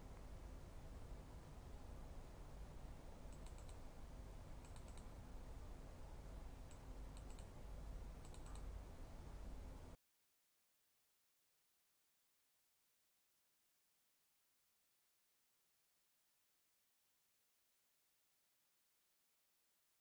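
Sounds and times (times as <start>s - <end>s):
faint low hum: 0.0s - 10.0s
small faint clicks: 3.3s - 3.9s, 4.6s - 5.2s, 6.6s - 7.6s, 8.2s - 8.8s.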